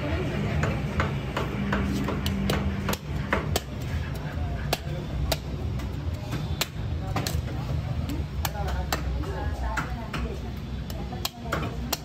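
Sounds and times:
cleaver chopping: 0:00.6 - 0:07.5.

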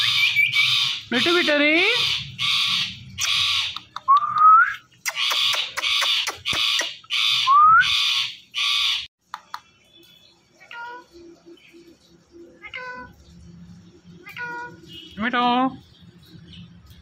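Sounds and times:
parakeet harsh calls: 0:00.0 - 0:03.8, 0:05.1 - 0:09.1.

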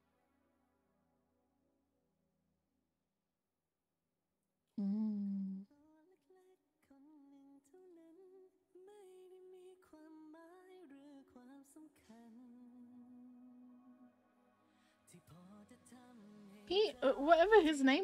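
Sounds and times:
woman humming: 0:04.8 - 0:05.7
soft slow background music: 0:06.9 - 0:18.0.

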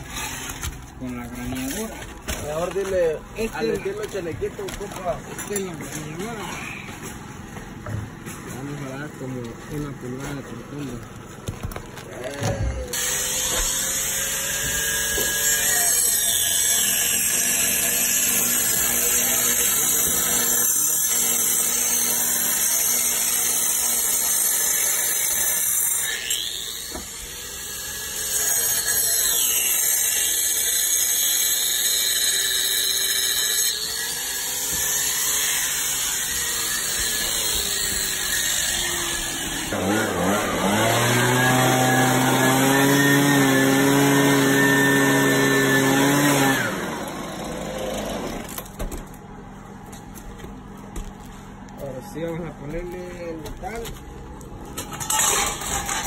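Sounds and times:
angle grinder cutting brick: 0:00.0 - 0:07.2, 0:08.5 - 0:48.8, 0:54.7 - 0:56.0
power tool motor: 0:09.7 - 0:48.8, 0:54.9 - 0:56.0.

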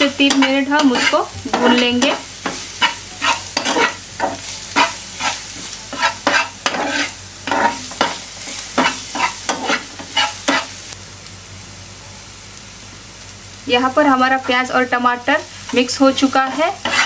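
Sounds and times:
food sizzling in oil: 0:00.0 - 0:17.0
metal spatula scraping a pan: 0:00.1 - 0:10.7, 0:15.7 - 0:17.0.

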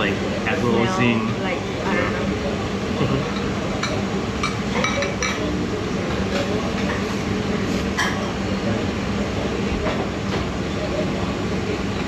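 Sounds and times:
dishes and cutlery clinking: 0:03.3 - 0:05.5, 0:07.9 - 0:08.4.

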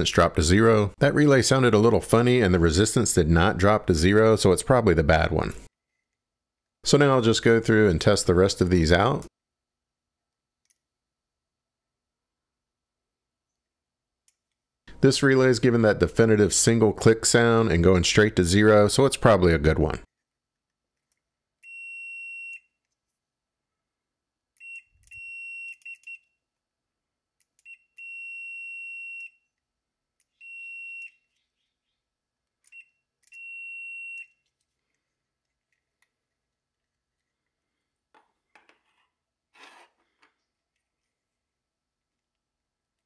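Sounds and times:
multimeter continuity beeps: 0:21.6 - 0:22.7, 0:24.6 - 0:26.3, 0:27.6 - 0:29.4, 0:30.2 - 0:31.3, 0:32.7 - 0:34.4.

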